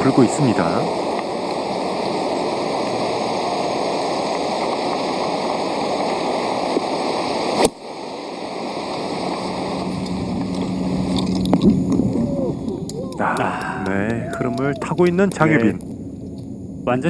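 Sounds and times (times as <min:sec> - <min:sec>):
wind on microphone: 0:08.6 - 0:17.0.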